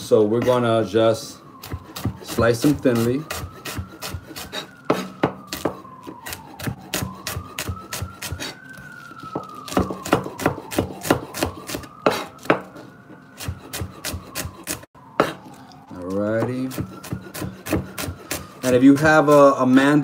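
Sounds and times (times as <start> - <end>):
siren wailing: 0.0 - 20.0
knife chopping on cutting board: 1.6 - 8.5, 9.3 - 12.7, 13.4 - 15.4, 16.4 - 18.5.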